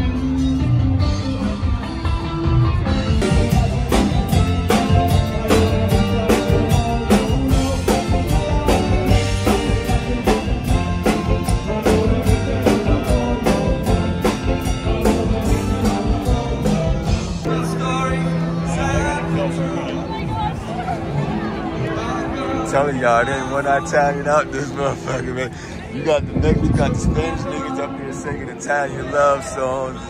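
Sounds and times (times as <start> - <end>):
live band over loudspeakers: 0.0 - 30.0
drum kit beat: 0.1 - 17.5.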